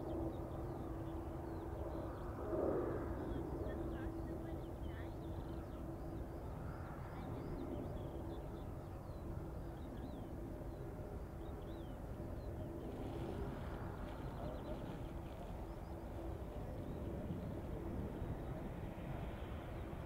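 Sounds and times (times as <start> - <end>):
jet engine drone: 0.0 - 20.0
small birds chirping: 3.2 - 13.1.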